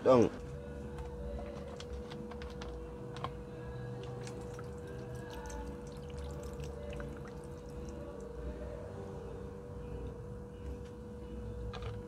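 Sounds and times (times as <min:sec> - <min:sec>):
vinegar pouring and splashing: 0:04.0 - 0:08.0.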